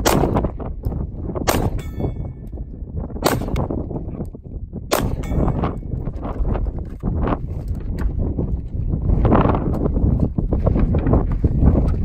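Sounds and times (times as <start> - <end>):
handgun shots: 0.0 - 0.5, 1.5 - 2.2, 3.2 - 3.8, 4.9 - 5.7
wind rumble on microphone: 0.0 - 12.0
steel targets ringing: 1.5 - 2.4, 5.0 - 5.8.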